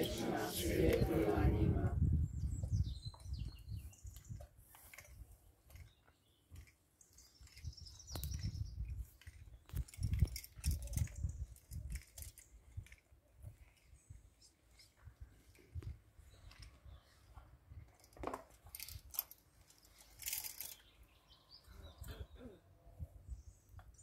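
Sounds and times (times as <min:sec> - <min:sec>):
small clicks and rustles: 0:04.0 - 0:21.0.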